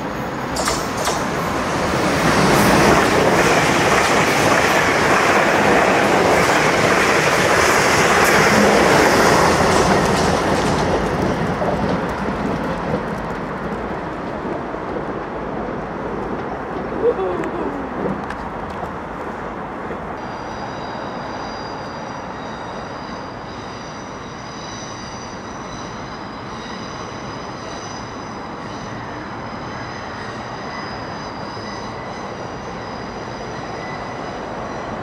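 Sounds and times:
wheel-on-rail noise: 0.0 - 22.7.

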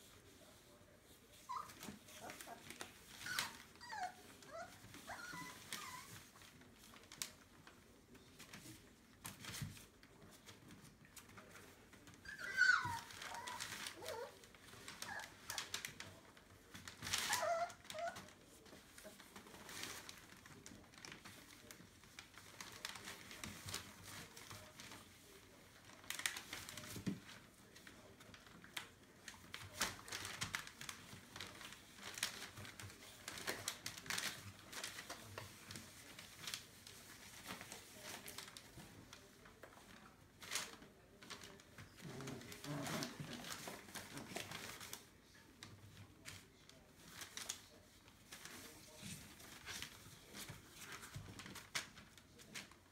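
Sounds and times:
newspaper crinkling and rustling: 0.0 - 52.9
high puppy squeak: 1.5 - 1.8, 3.2 - 6.1, 12.2 - 14.2.

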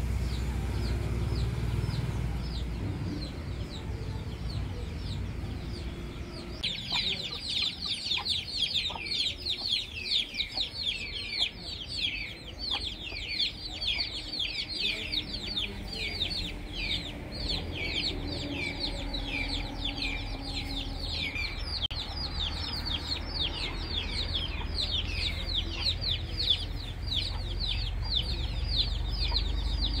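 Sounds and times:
small birds chirping: 0.0 - 30.0
chicken clucking: 6.3 - 22.0, 22.7 - 30.0.

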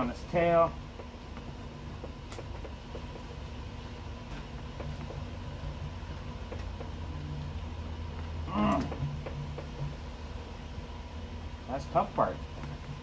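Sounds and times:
steady low hum: 0.0 - 13.0
wavering voice-like sound: 8.4 - 9.0.

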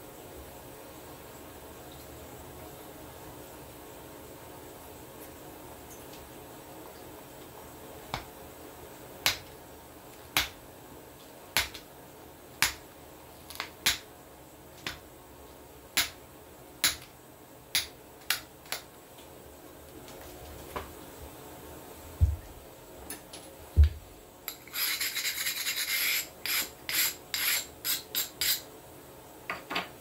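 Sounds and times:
hand file rasping on steel blade: 24.5 - 28.6.

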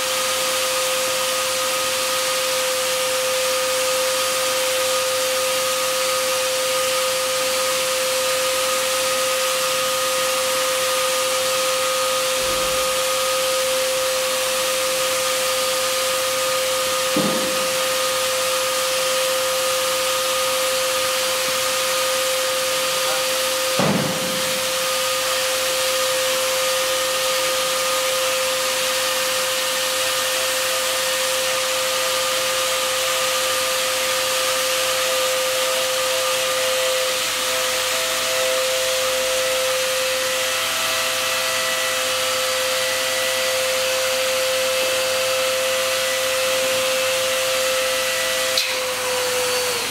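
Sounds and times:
electric air blower whining: 0.0 - 49.9.

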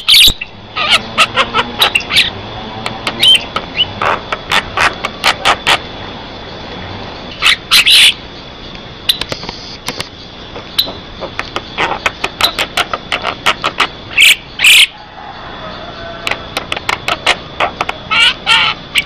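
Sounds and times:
myna harsh squawky calls: 0.0 - 2.4, 3.2 - 5.9, 7.3 - 8.2, 10.6 - 15.0, 16.9 - 19.0
bird chattering and clicking notes: 0.1 - 5.8, 7.4 - 14.8, 16.3 - 19.0.

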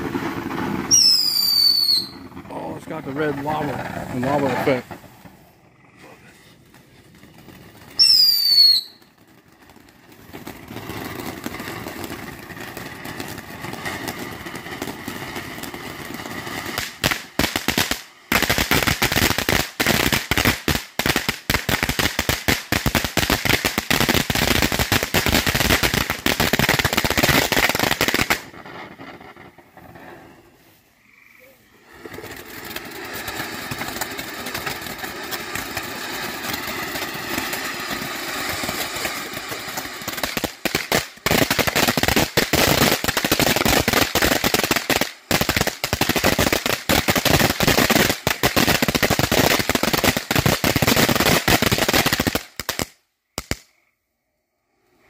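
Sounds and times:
firework whistle: 0.0 - 4.8, 7.4 - 9.3
firework fountain hissing spray: 0.0 - 53.0
loud dense firework crackling: 0.0 - 53.7.

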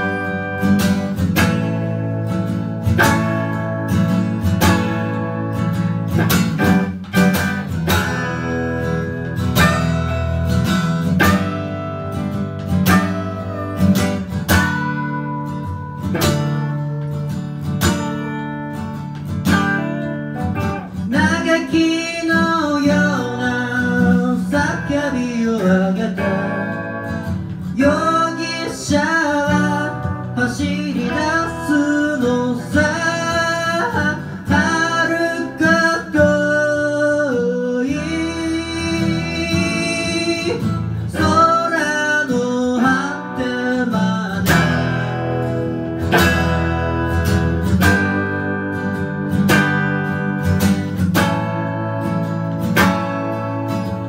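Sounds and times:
acoustic and electric guitars: 0.0 - 54.0
woman singing: 27.8 - 44.6.

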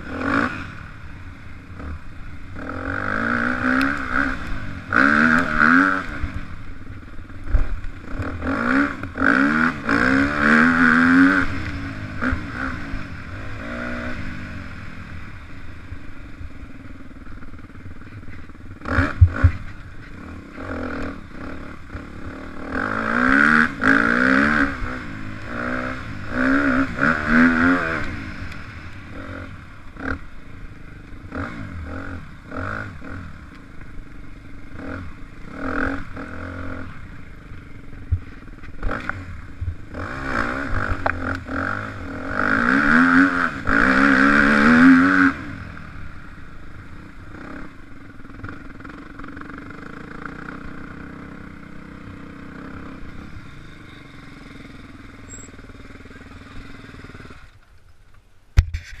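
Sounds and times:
dirt bike engine revving: 0.0 - 57.6.

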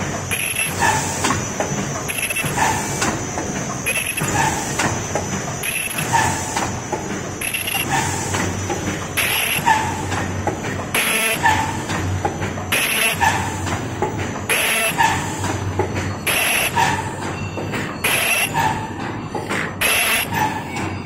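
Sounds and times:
machine mechanical clatter: 0.0 - 21.0.

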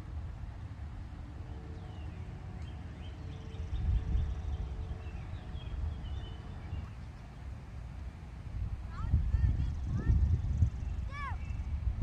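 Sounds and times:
wind rumbling on microphone: 0.0 - 12.0
birds chirping: 1.4 - 7.8, 8.9 - 11.8.

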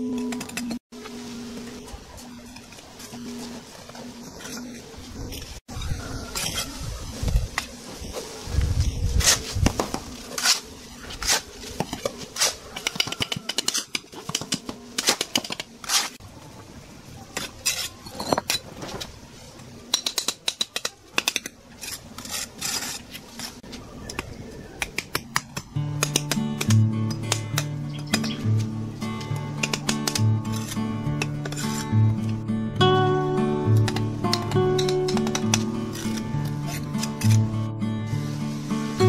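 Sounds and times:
trowel scraping mortar: 9.2 - 16.2, 20.0 - 23.7, 29.3 - 32.4, 33.7 - 37.5
trowel clinking on bricks: 17.4 - 18.7, 33.8 - 37.4.

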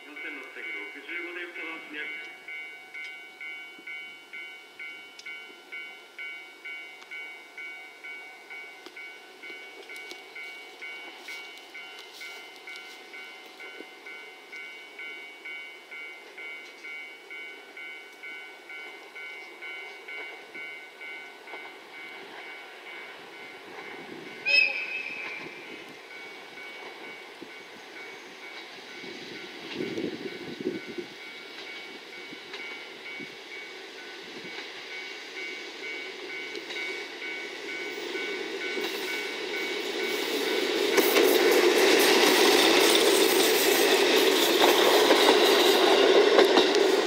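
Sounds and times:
ringing warning bell: 0.0 - 44.2
diesel railcar approaching: 0.0 - 47.0
train horn blast: 24.4 - 25.6.

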